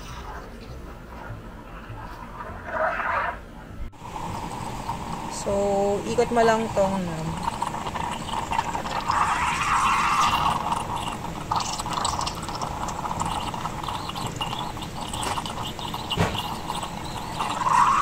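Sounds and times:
steam wand frothing milk: 0:04.0 - 0:18.0.

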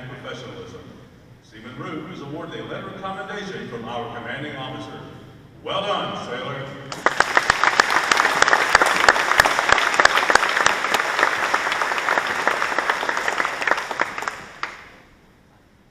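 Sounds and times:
audience applauding: 0:06.9 - 0:15.0
close hand claps: 0:06.9 - 0:15.1.

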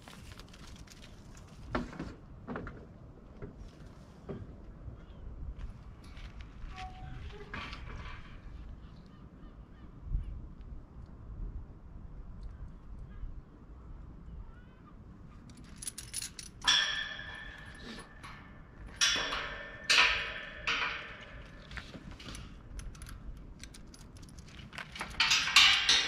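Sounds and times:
chain rattling against metal gate: 0:15.4 - 0:26.0.

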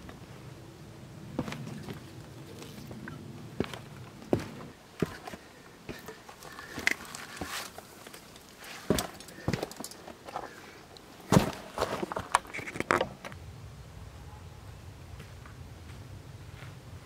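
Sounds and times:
boots on metal ladder steps: 0:01.3 - 0:10.6, 0:11.2 - 0:12.5.

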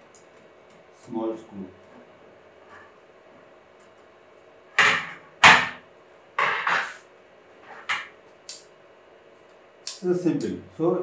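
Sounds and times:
sharp knocks: 0:04.8 - 0:05.8, 0:06.4 - 0:07.0.

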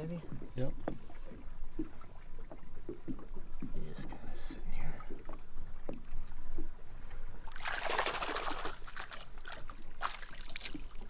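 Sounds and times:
fish splashing water: 0:07.4 - 0:11.0.

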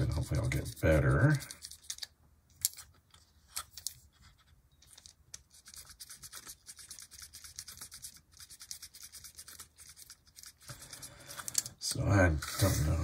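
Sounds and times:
brush scratching wheels: 0:00.0 - 0:02.1, 0:05.5 - 0:11.6, 0:12.2 - 0:13.0.

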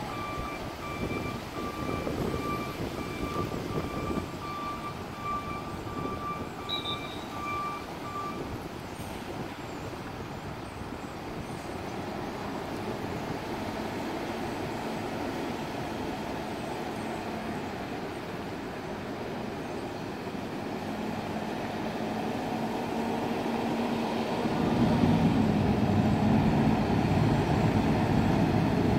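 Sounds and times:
truck backup alarm beeping: 0:00.0 - 0:08.6
truck engine running: 0:10.5 - 0:28.9.

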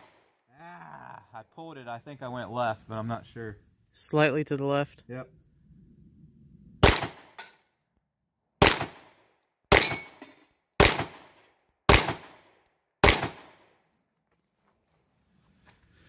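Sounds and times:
pistol shots echoing: 0:06.8 - 0:07.5, 0:08.6 - 0:13.7.

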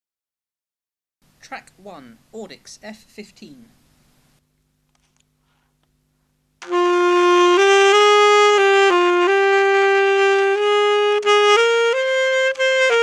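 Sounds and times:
alto saxophone slow melody: 0:06.6 - 0:13.0.

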